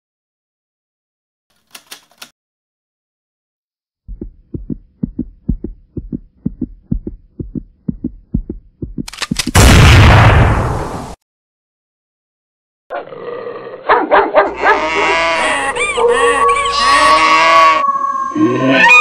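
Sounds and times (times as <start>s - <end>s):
heartbeat thudding: 4.1s - 9.6s
rapid sharp clicks: 8.3s - 9.6s.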